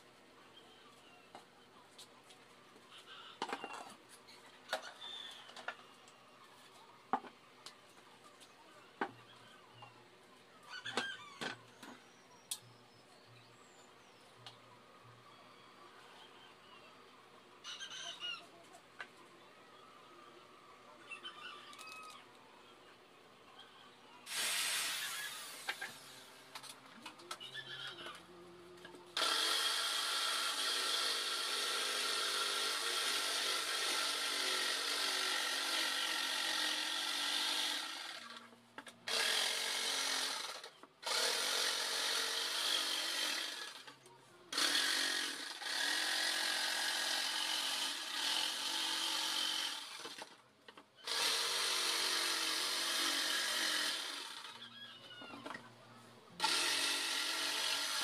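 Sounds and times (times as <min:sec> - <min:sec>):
jigsaw cutting plywood: 0:24.3 - 0:26.0, 0:29.2 - 0:38.3, 0:39.1 - 0:43.9, 0:44.5 - 0:50.3, 0:51.0 - 0:54.7, 0:56.4 - 0:58.0.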